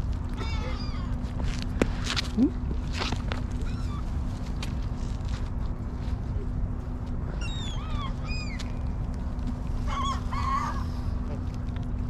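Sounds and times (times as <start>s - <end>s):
city background rumble: 0.0s - 12.0s
wavering bird call: 7.4s - 8.8s, 9.8s - 11.1s.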